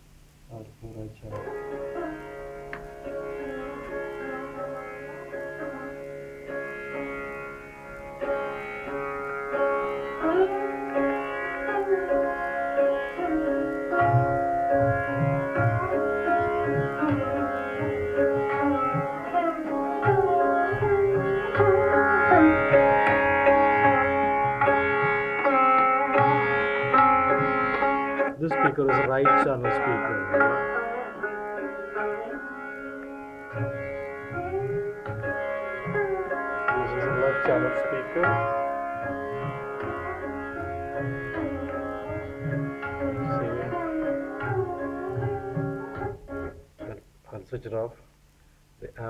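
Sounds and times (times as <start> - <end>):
plucked string melody: 0.0 - 47.2
low hand-drum strokes: 13.3 - 25.3, 33.5 - 47.0.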